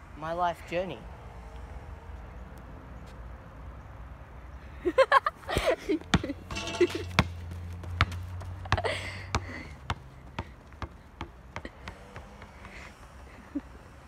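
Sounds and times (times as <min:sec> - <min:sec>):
sharp taps on asphalt: 0:05.5 - 0:12.8.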